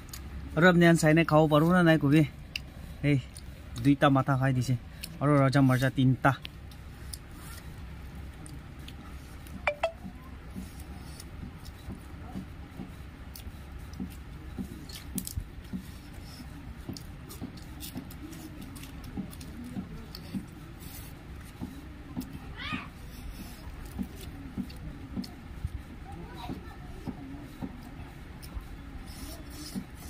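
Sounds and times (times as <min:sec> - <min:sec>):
chewing: 0:13.2 - 0:22.3.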